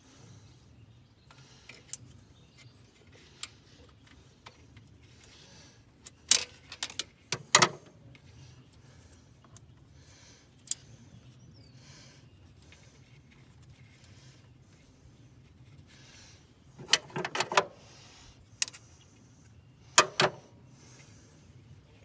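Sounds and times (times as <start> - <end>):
clicks of engine parts handled: 6.0 - 8.2, 16.8 - 17.7, 19.9 - 20.4.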